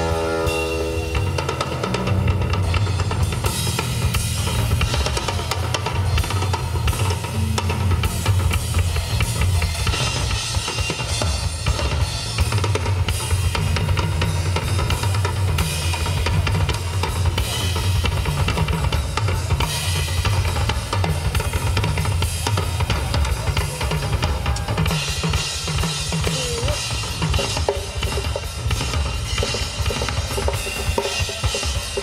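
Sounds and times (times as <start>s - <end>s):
cymbals crashing: 0.0s - 2.8s
double bass drums: 0.0s - 32.0s
rapid drum strokes on toms: 0.0s - 32.0s.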